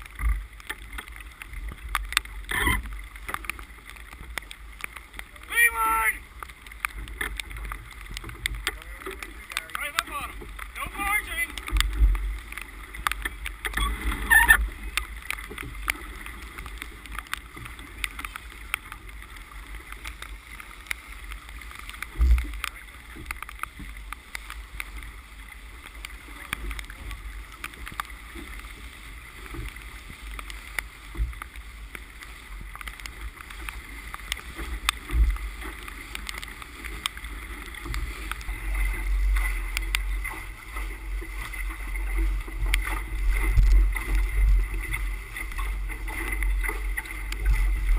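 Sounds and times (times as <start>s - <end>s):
water rushing along hull: 0.0s - 47.9s
wind rumble on microphone: 22.0s - 47.9s.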